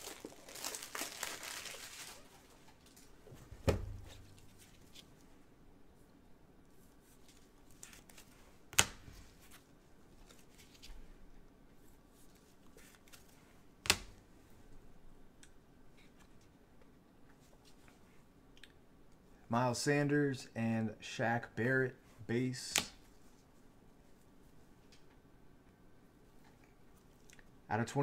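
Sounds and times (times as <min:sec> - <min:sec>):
plastic sleeve rustling and sliding: 0:00.0 - 0:03.1, 0:04.1 - 0:05.3.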